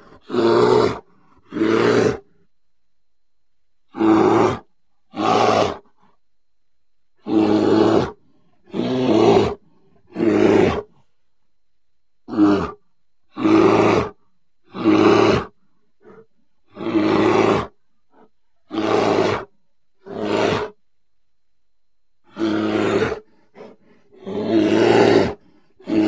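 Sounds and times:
bear roaring: 0.0 - 2.4, 3.9 - 5.9, 7.2 - 11.0, 12.2 - 20.8, 22.3 - 26.0.

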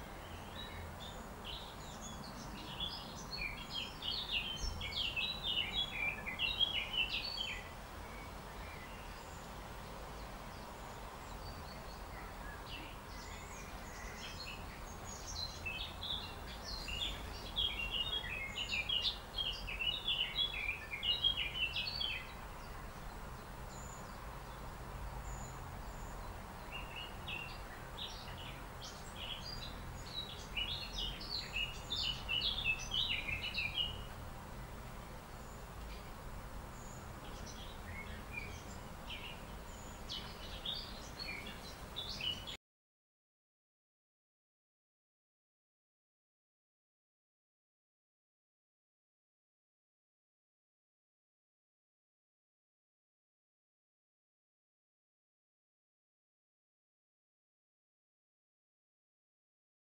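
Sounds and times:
songbirds twittering: 0.0 - 42.6.

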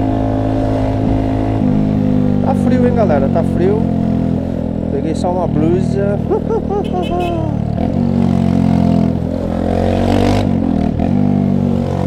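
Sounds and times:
motorcycle engine running: 0.0 - 11.7.

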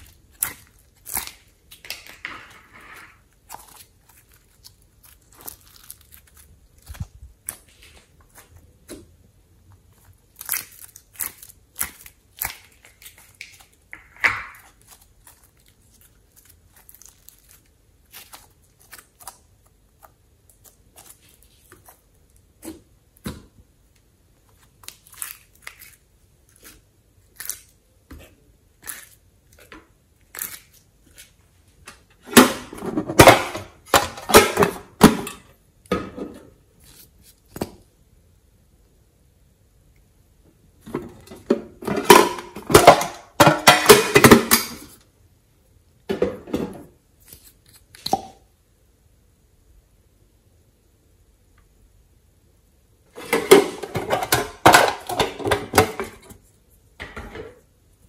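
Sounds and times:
crackling tearing handling noise: 0.0 - 9.1, 9.7 - 14.0, 14.6 - 22.4.

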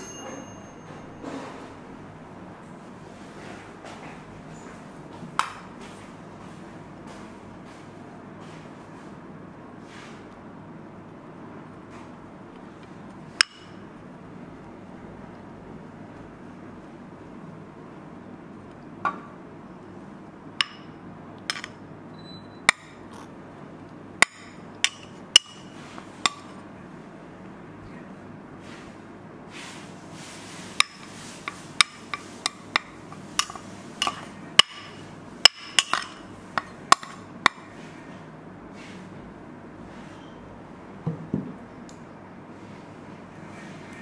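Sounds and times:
kitchenware clinking: 0.0 - 1.8, 20.6 - 21.8, 30.8 - 37.2.

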